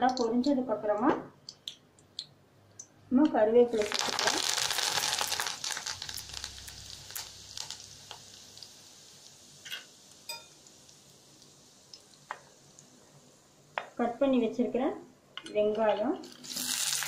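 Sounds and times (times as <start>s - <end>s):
leaves sizzling in hot oil: 3.7s - 13.0s, 16.2s - 17.0s.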